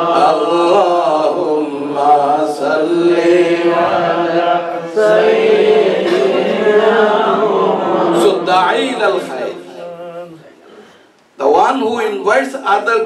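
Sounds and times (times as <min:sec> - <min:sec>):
man chanting: 0:08.0 - 0:10.6.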